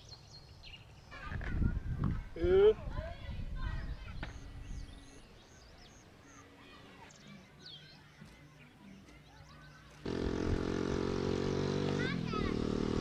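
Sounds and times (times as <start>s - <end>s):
birds chirping and whistling: 3.6s - 10.1s
loud engine-like hum: 10.0s - 13.0s.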